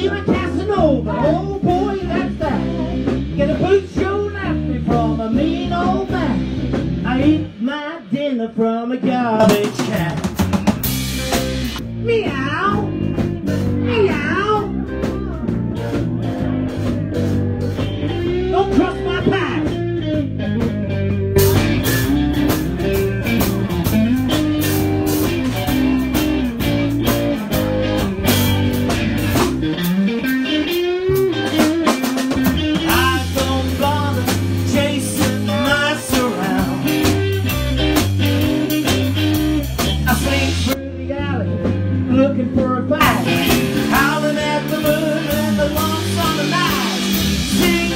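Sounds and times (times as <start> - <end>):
electric guitar lead: 0.0 - 7.6, 9.4 - 47.9
bass line: 0.0 - 47.9
drum kit: 0.0 - 47.9.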